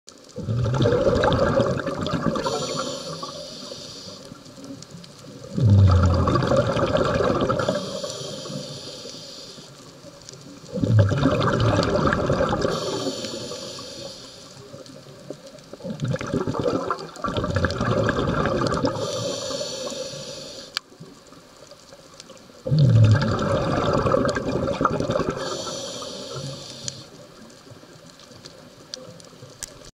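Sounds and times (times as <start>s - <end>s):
gush of exhaled bubbles: 0.3s - 4.2s, 5.4s - 8.9s, 10.7s - 14.1s, 15.7s - 20.4s, 22.6s - 26.9s
regulator inhalation hiss: 2.3s - 4.6s, 7.4s - 9.9s, 12.6s - 14.8s, 18.8s - 20.8s, 25.3s - 27.3s.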